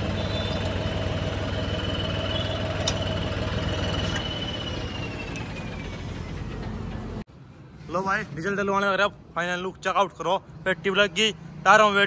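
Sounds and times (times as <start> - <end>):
diesel engine idling: 0.0 - 7.3.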